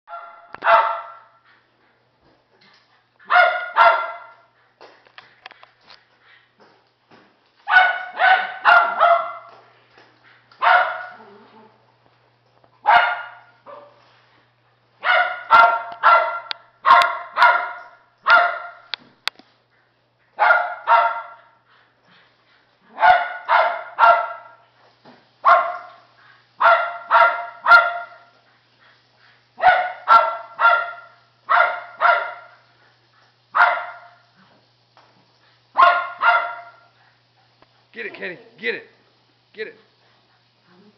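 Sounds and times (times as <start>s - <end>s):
dog barking sharply: 0.1s - 1.3s, 3.3s - 4.3s, 7.7s - 9.5s, 10.6s - 11.1s, 12.9s - 14.0s, 15.0s - 18.9s, 20.4s - 21.4s, 22.9s - 24.6s, 25.4s - 25.9s, 26.6s - 28.2s, 29.6s - 32.6s, 33.6s - 34.2s, 35.8s - 36.8s.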